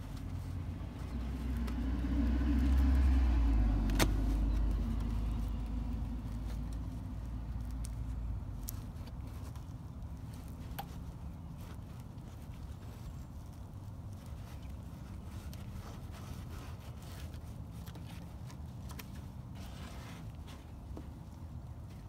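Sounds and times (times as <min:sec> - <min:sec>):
passing vehicle rumble: 0:00.0 - 0:09.4.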